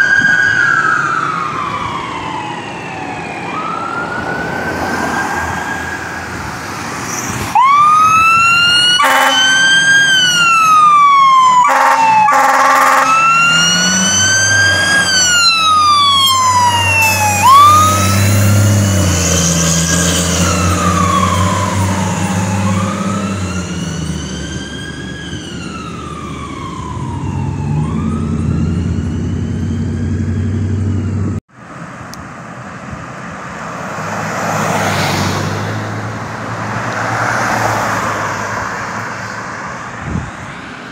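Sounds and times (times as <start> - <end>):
fire engine siren wailing: 0.0 - 31.4
horn blasts: 9.0 - 9.7, 11.7 - 13.4
truck engine running: 27.9 - 31.4.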